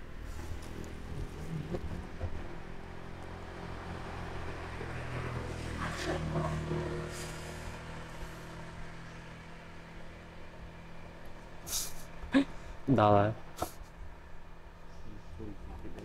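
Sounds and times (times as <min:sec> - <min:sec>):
vehicle engine passing by: 0:00.0 - 0:12.7.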